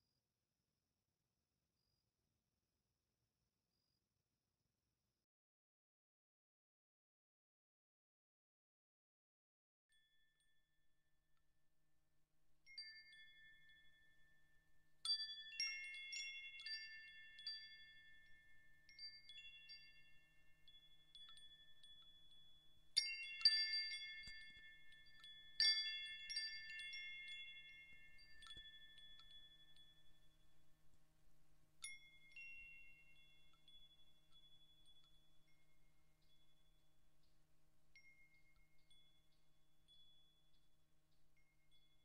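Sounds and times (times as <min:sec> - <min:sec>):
wind chimes ringing: 0:12.6 - 0:31.1, 0:31.8 - 0:37.0, 0:37.9 - 0:40.7.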